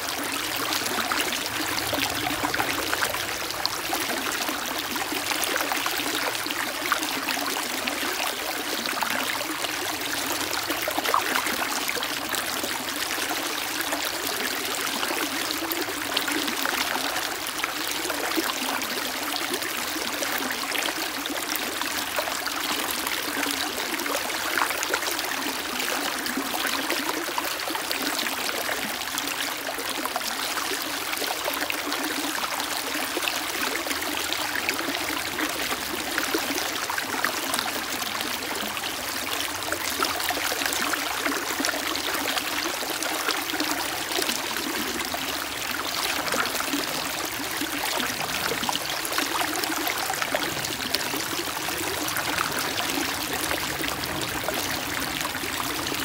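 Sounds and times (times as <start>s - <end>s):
stream rushing over rocks: 30.3s - 56.0s.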